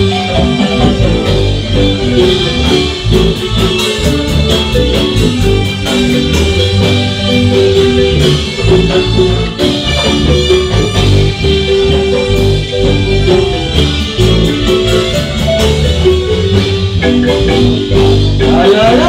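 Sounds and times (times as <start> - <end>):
bass line: 0.0 - 19.0
drums: 0.0 - 19.0
marimba melody: 0.0 - 19.0.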